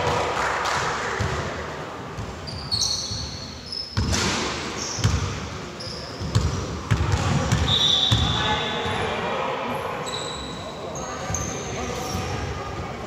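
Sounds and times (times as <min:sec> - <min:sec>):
sneakers squeaking on floor: 0:02.2 - 0:09.2, 0:10.0 - 0:12.7
basketball bouncing: 0:05.0 - 0:05.4, 0:06.2 - 0:08.3.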